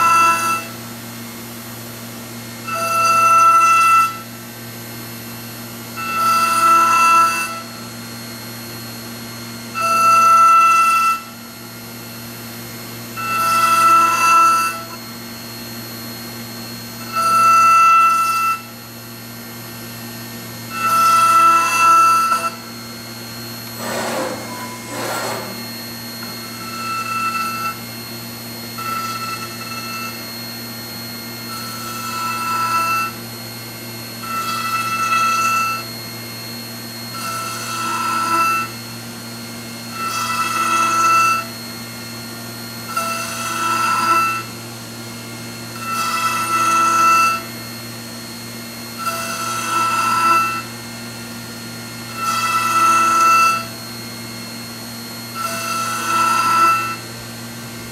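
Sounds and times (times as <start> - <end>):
machine spindle running: 20.6 - 28.0
ringing cutting noise in wood: 23.4 - 30.6, 51.7 - 57.2.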